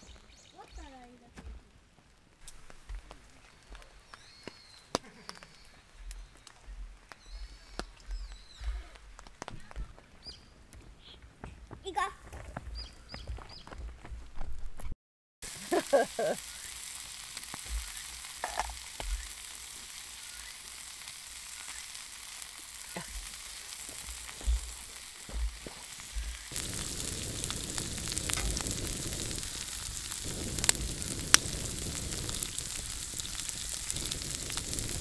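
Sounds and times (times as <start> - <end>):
food sizzling on a griddle: 0.0 - 1.2, 2.4 - 9.7, 15.4 - 35.0
sharp pops: 2.4 - 10.0, 14.8 - 35.0.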